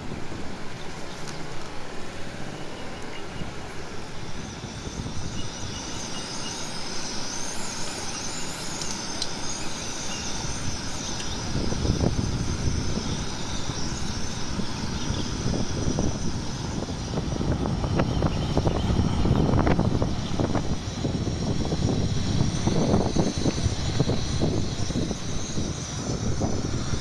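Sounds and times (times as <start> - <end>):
low rumbling gust: 10.3 - 27.0.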